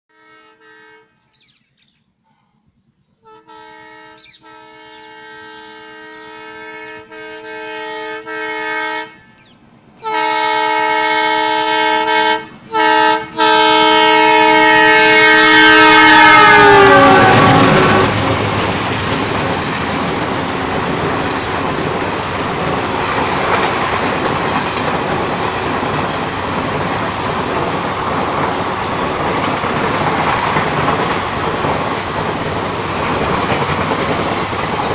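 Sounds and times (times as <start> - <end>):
locomotive horn blasts: 0.1 - 1.2, 3.2 - 9.4, 10.0 - 18.6
train wheels rushing on rails: 9.2 - 34.9.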